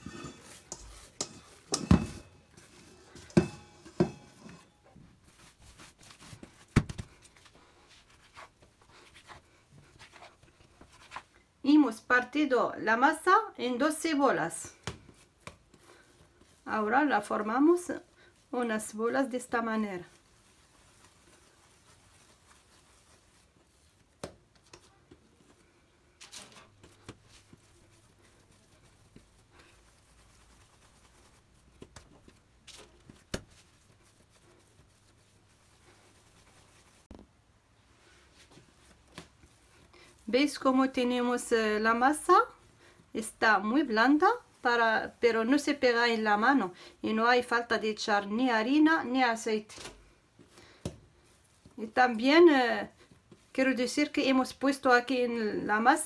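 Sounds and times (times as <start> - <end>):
metal bowl knocking on countertop: 0.0 - 2.4, 3.2 - 4.7
hands rolling and patting dough: 0.0 - 56.0
short rustle: 19.6 - 37.1.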